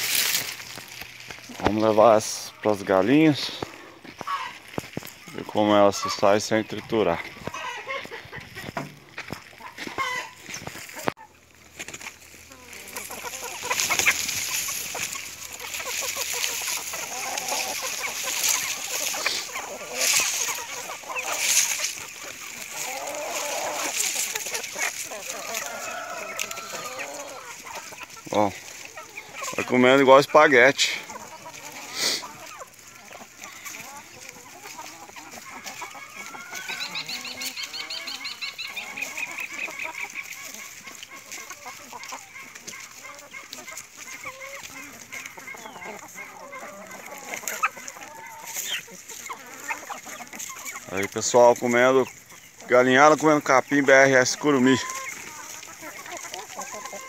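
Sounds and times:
hens clucking: 0.0 - 57.0
leaves rustling: 0.0 - 57.0.

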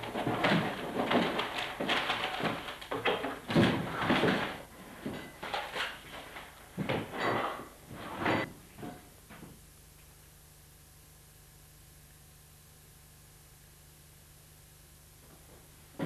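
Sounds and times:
bumps and rustles: 0.0 - 7.3.

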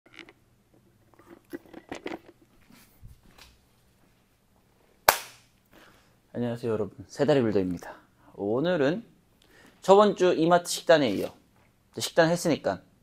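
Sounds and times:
handling clicks and rustles: 0.1 - 3.6
loud sharp smack: 5.1 - 5.5.

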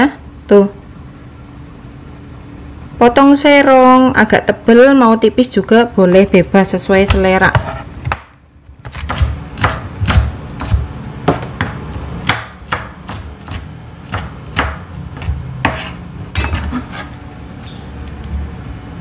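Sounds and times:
knife chopping on plastic board: 7.0 - 16.9.

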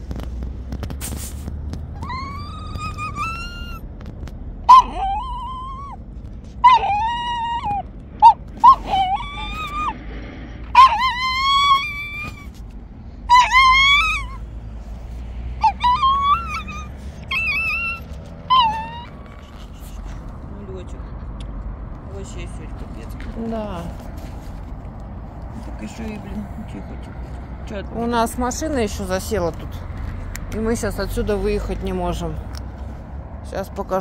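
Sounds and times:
puppy whining yelps: 2.0 - 3.9, 4.6 - 6.0, 6.6 - 10.0, 10.7 - 12.6, 13.3 - 14.5, 15.5 - 20.2.

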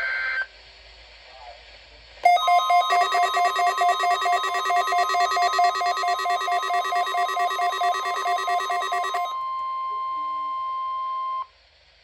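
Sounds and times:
steady alarm tone: 2.2 - 9.4
pulsing electronic alarm beeping: 2.3 - 9.4.

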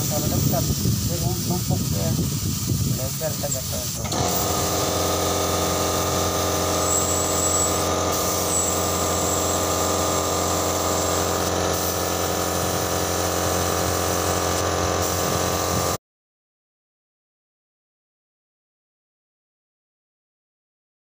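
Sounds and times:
air compressor motor humming: 0.0 - 16.0
paint spray gun hissing: 0.0 - 16.0.

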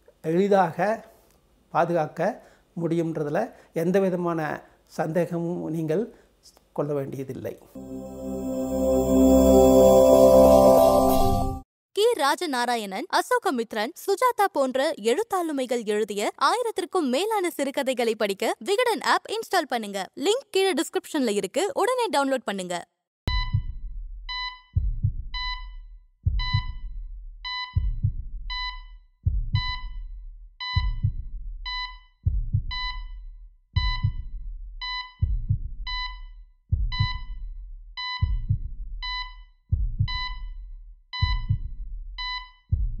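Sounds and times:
heartbeat thumps: 23.3 - 43.0.

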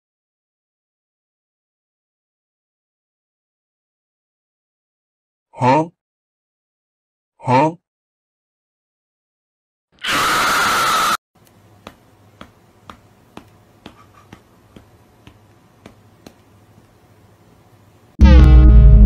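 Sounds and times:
harsh noise blast: 18.2 - 19.0.

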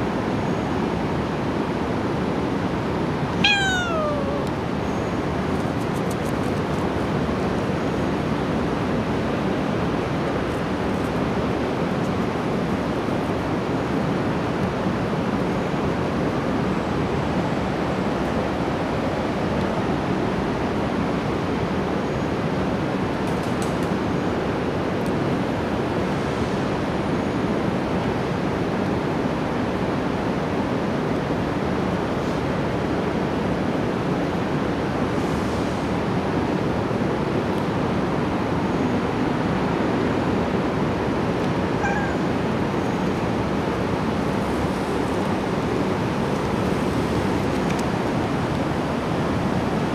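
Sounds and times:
short pitched call: 3.4 - 4.5, 41.8 - 42.2.

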